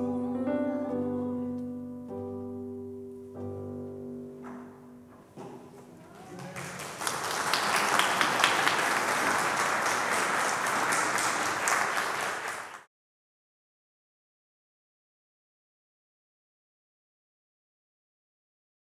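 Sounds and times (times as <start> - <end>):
audience applauding: 6.1 - 12.9.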